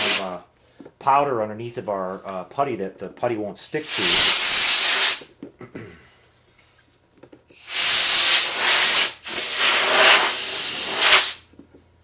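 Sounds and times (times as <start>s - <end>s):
compressed air hissing from nozzle: 0.0s - 0.2s, 3.8s - 5.3s, 7.5s - 11.5s.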